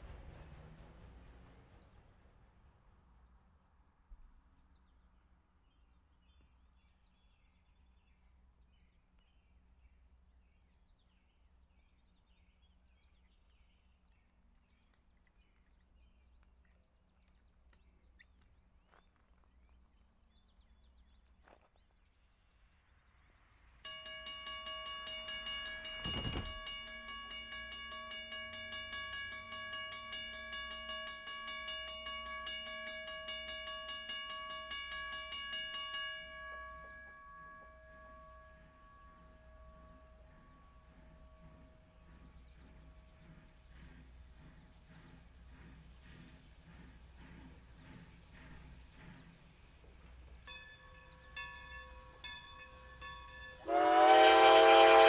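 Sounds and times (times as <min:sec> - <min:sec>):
faint birdsong: 0:04.2 - 0:53.6
railroad bell ringing: 0:23.9 - 0:43.2, 0:50.4 - 0:55.0.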